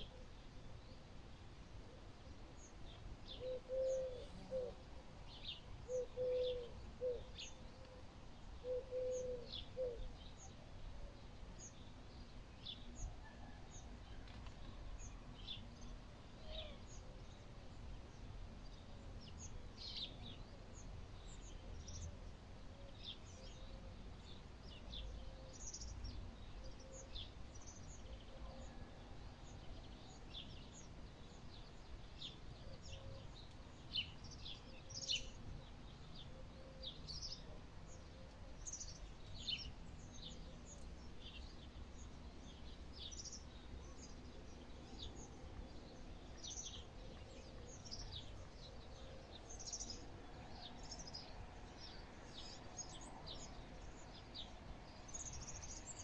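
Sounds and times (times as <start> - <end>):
lower louder bird call: 3.4 - 4.8, 5.9 - 8.0, 8.6 - 10.1
small birds chirping: 15.0 - 56.0.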